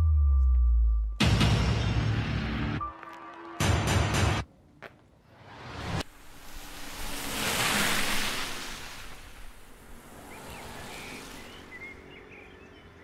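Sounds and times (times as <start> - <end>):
car passing: 5.4 - 13.0.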